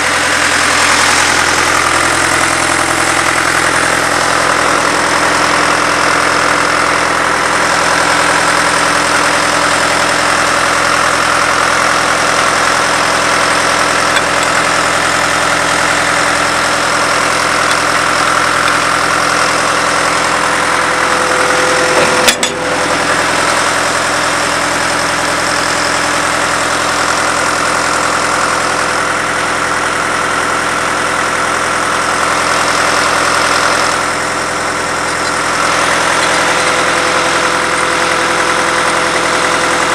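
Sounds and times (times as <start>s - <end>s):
drill rig engine idling: 0.0s - 39.9s
sharp metallic clank: 21.8s - 23.3s.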